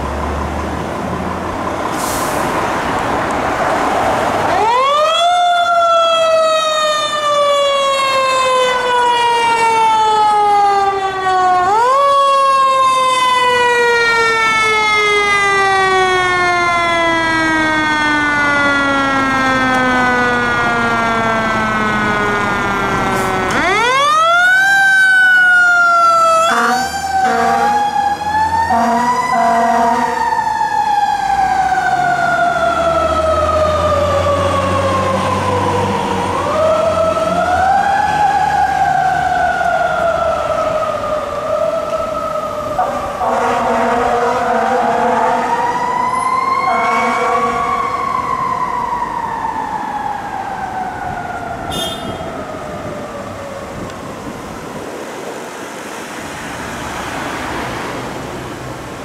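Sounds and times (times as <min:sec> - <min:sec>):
truck engine running low: 0:00.0 - 0:04.6
mechanical siren wailing: 0:04.5 - 0:54.5
air horn blasts: 0:26.4 - 0:27.8, 0:28.7 - 0:30.2, 0:42.8 - 0:45.5, 0:46.7 - 0:47.7, 0:51.7 - 0:52.3.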